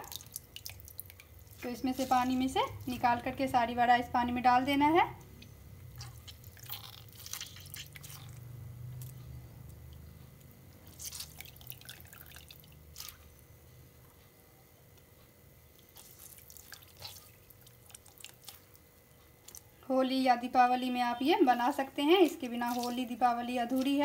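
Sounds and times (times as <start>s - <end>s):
water dripping and splashing: 0.0s - 2.4s, 6.0s - 9.1s, 10.8s - 13.2s, 15.9s - 18.8s, 22.5s - 24.0s.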